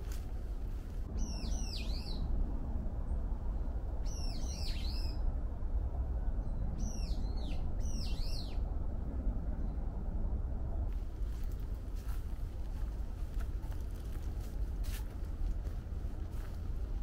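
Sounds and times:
low background rumble: 0.0s - 17.0s
songbird whistled calls: 1.2s - 2.2s, 4.0s - 5.2s, 6.8s - 8.6s.

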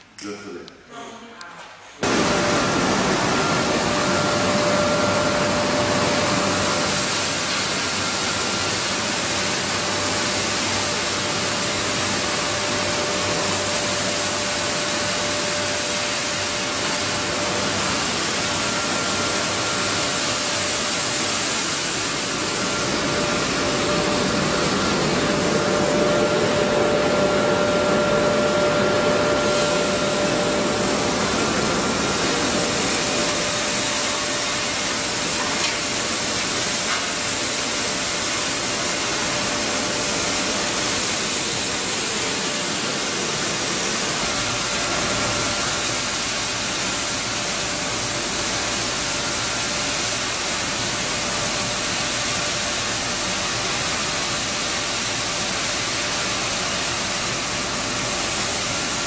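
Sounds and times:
flour mill machinery rushing: 2.0s - 59.0s.

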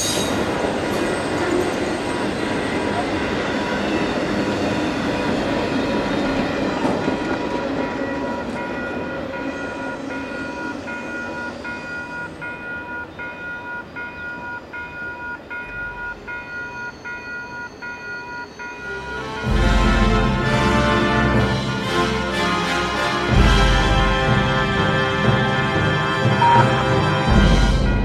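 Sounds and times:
freight train rolling past: 0.0s - 28.0s
crossing warning bell ringing: 7.7s - 19.3s, 26.3s - 28.0s.

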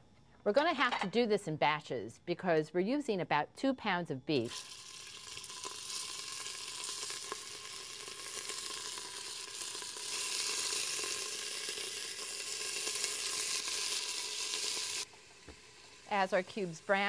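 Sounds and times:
beef sizzling in hot oil: 4.4s - 17.0s.

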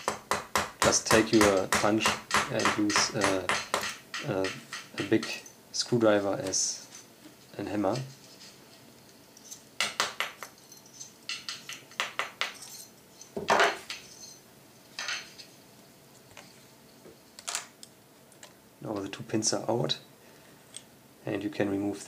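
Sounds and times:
metal clinks: 10.4s - 15.5s.

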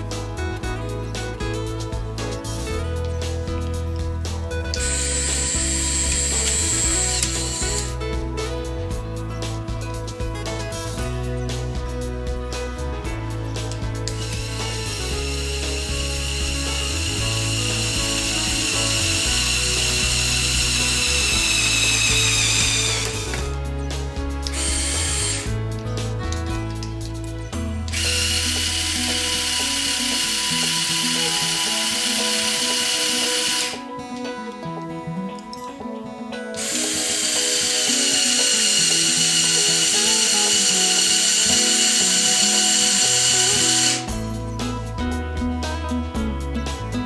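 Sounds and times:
background music: 0.0s - 47.0s
toy motor whining: 4.8s - 7.9s, 14.1s - 23.5s, 24.5s - 25.5s, 27.9s - 33.8s, 36.6s - 44.1s.

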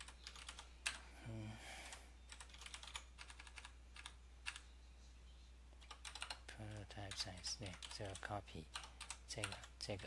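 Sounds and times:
keyboard keys clicking: 0.0s - 1.0s, 2.3s - 4.6s, 5.8s - 8.2s.

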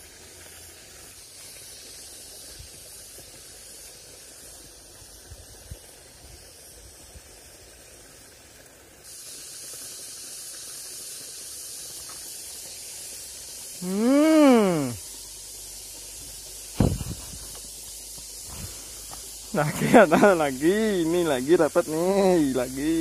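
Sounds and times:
faint low thuds: 16.8s - 17.4s.

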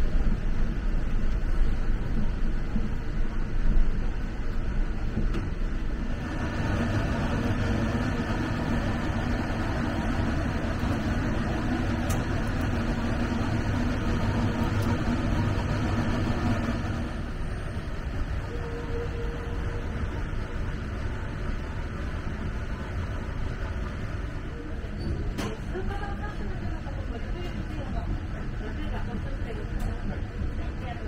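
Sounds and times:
train interior rumble: 0.0s - 31.0s.

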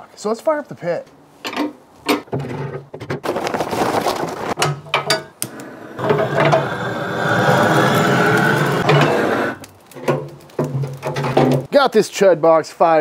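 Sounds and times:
torch flame hissing: 5.5s - 9.7s.

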